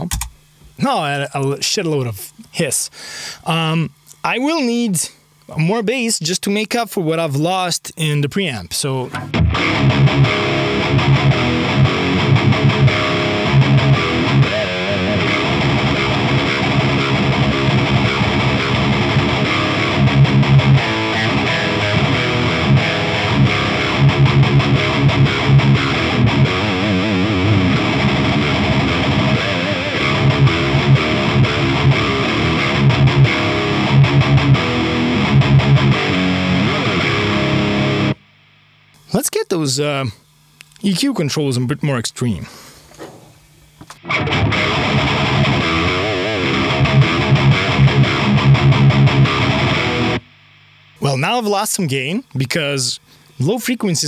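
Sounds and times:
distorted electric guitar riffs: 8.8 - 40.1, 43.9 - 54.0.

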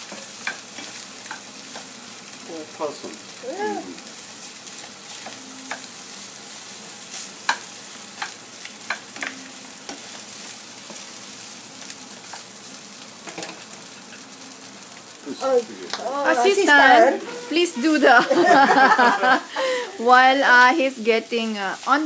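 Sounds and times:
spatula tapping pan: 0.0 - 2.0, 7.4 - 10.1
rice sizzling in a frying pan: 0.0 - 22.0
spatula scraping pan: 15.9 - 19.0.

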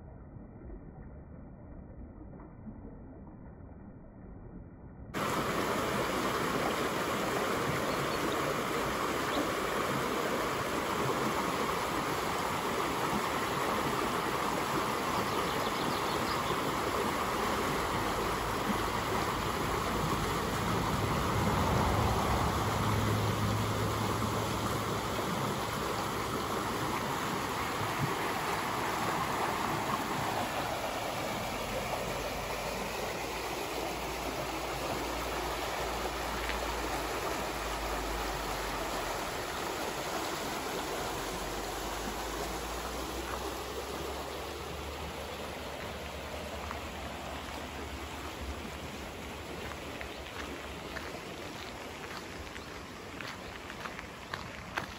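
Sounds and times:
low rumble: 0.0 - 5.2
stream rushing over weir: 5.2 - 54.9.

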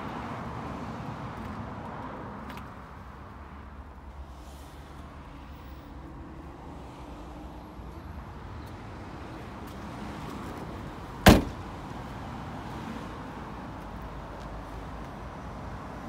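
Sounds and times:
car door slamming: 11.2 - 11.7.

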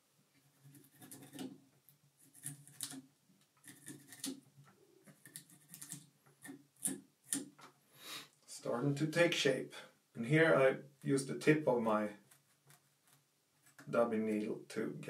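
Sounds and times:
brush scratching through dubbing: 0.4 - 1.5, 3.6 - 4.3, 5.0 - 7.0, 12.2 - 13.9.

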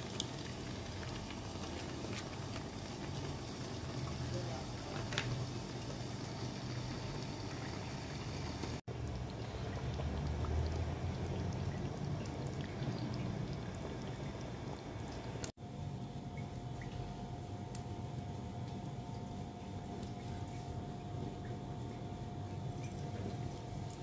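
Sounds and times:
water pouring and splashing: 0.0 - 15.6, 22.6 - 24.0.

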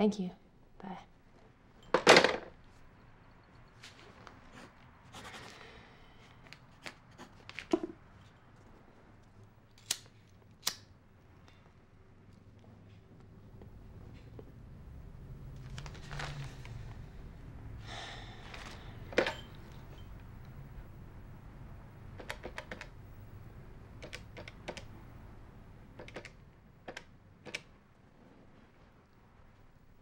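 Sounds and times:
telephone handset clunk: 19.1 - 19.6.

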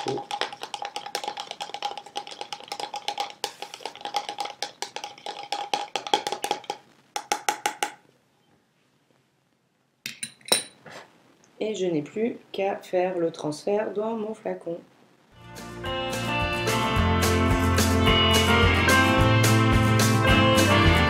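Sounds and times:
stick clicking in plastic cup: 0.0 - 8.0.

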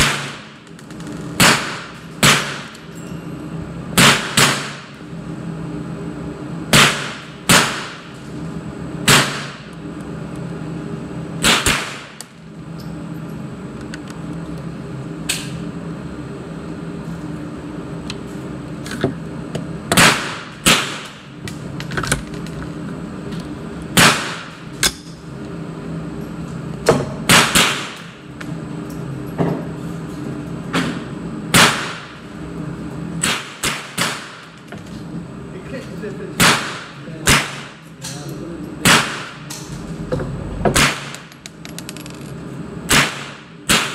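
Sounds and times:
steady hum: 0.0 - 43.9
rifle shots echoing indoors: 1.4 - 2.7, 4.0 - 4.9, 6.7 - 8.0, 11.4 - 12.2, 24.0 - 24.5, 27.3 - 28.0, 31.5 - 32.2, 38.8 - 39.5, 40.7 - 41.3, 42.9 - 43.9.

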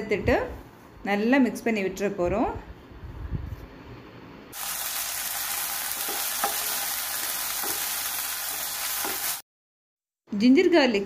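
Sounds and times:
food sizzling in hot oil: 4.5 - 9.4.

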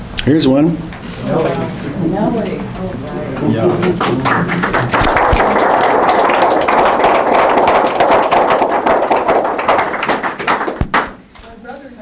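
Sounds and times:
audience applauding: 3.3 - 11.2.

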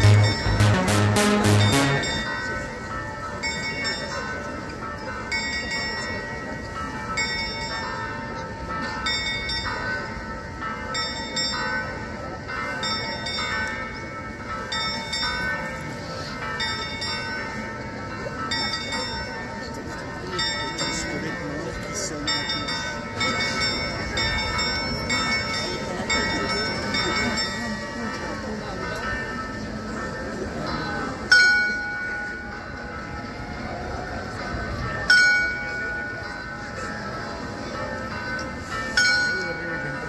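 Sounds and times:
clock bell striking: 0.0 - 19.7.

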